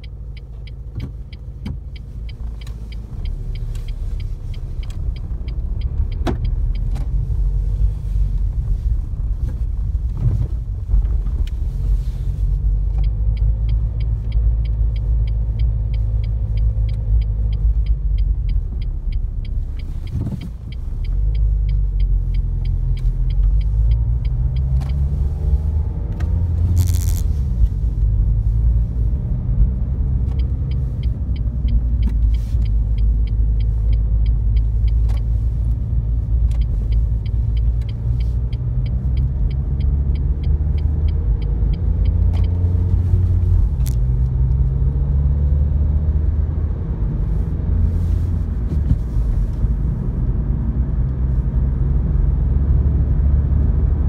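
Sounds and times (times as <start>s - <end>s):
indicator ticking: 0.0s - 7.6s, 12.7s - 25.5s, 26.2s - 28.8s, 30.1s - 44.4s
car engine and tyres rumbling: 0.0s - 54.0s.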